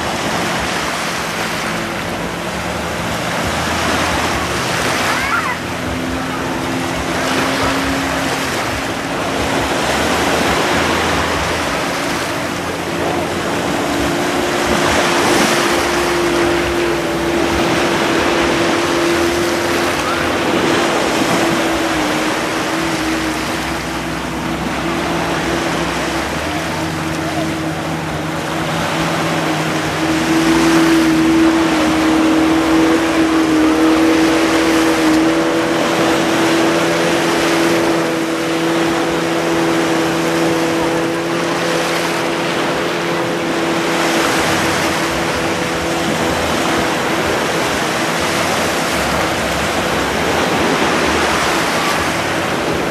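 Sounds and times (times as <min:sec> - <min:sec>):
small waves breaking on sand: 0:00.0 - 0:52.9
speedboat engines droning: 0:00.0 - 0:52.9.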